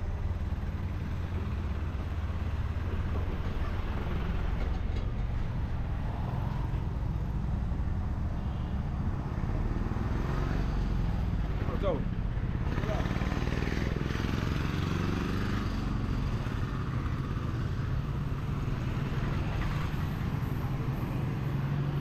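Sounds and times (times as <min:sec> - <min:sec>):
traffic engine rumble: 0:00.0 - 0:22.0.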